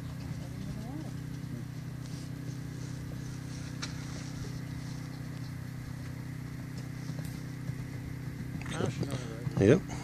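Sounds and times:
low engine-like hum: 0:00.0 - 0:10.0.

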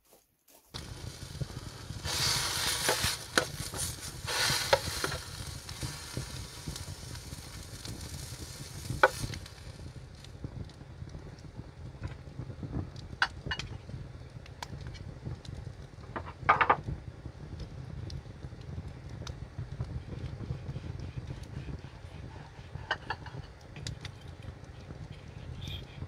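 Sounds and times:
sharp pops and crackles: 0:00.5 - 0:26.0
steak sizzling in a pan: 0:00.8 - 0:10.2.

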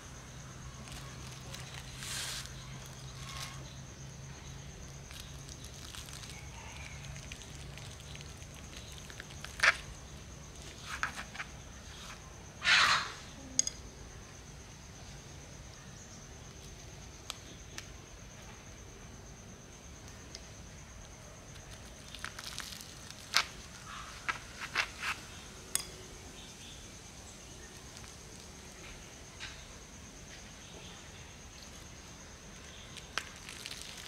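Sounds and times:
faint rustling: 0:00.8 - 0:03.8.

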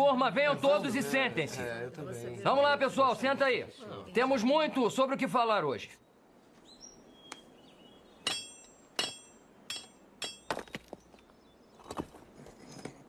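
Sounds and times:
metal tool clinking on rock: 0:08.3 - 0:10.8.

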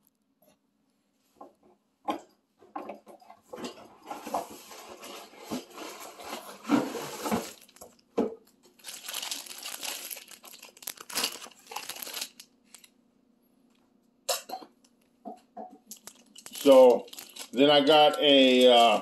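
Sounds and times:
plastic packaging rustling: 0:04.1 - 0:08.0, 0:08.7 - 0:12.9, 0:15.9 - 0:19.0.

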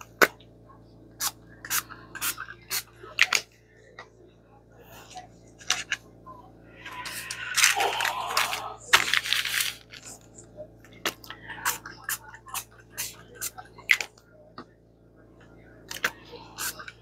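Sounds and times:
paper rustling and crinkling: 0:07.1 - 0:10.3.

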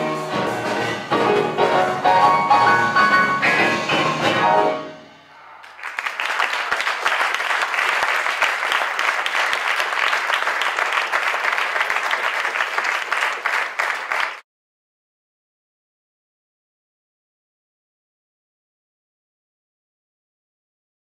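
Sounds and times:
audience applause: 0:05.6 - 0:14.4.

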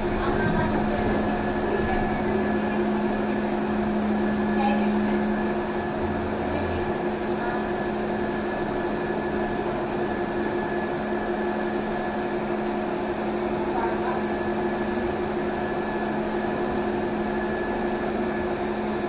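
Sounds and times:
trolleybus electrical hum: 0:00.0 - 0:19.0.

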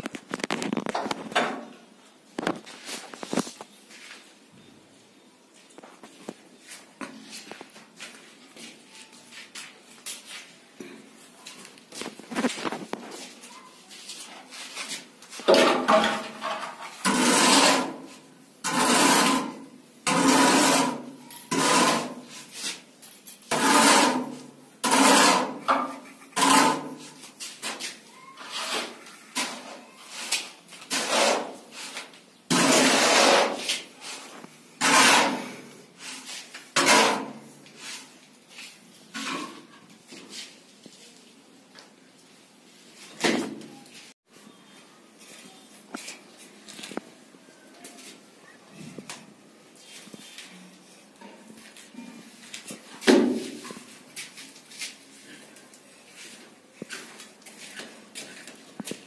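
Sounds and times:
trowel scraping plaster: 0:15.8 - 0:38.2.

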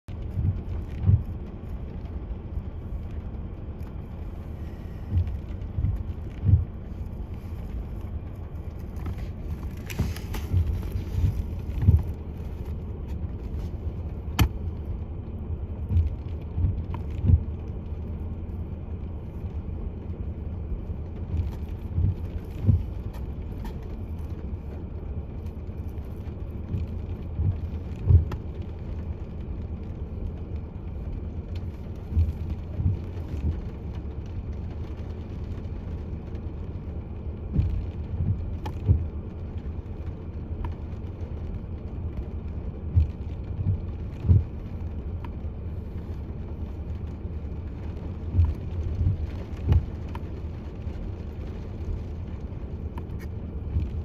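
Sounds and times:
wind rumbling on microphone: 0:00.0 - 0:54.0
gusts thumping on microphone: 0:00.1 - 0:01.6, 0:04.6 - 0:14.8, 0:15.7 - 0:17.6, 0:21.2 - 0:24.1, 0:26.6 - 0:28.6, 0:37.4 - 0:39.2, 0:42.8 - 0:46.3, 0:48.2 - 0:50.5.

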